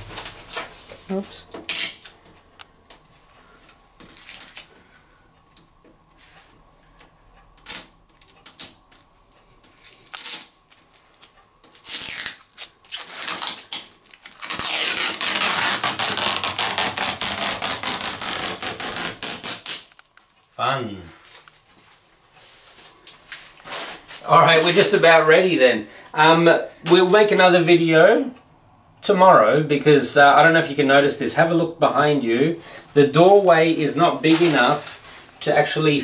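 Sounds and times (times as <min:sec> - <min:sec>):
plastic film peeling: 0:00.1 - 0:02.2, 0:04.0 - 0:04.7, 0:07.6 - 0:08.8, 0:09.7 - 0:20.4
plastic film crinkling: 0:04.0 - 0:04.7, 0:09.8 - 0:20.4.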